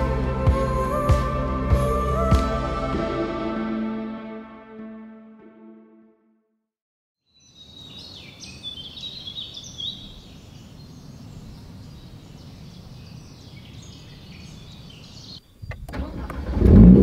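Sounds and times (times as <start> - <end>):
birds chirping and singing: 7.4 - 15.8.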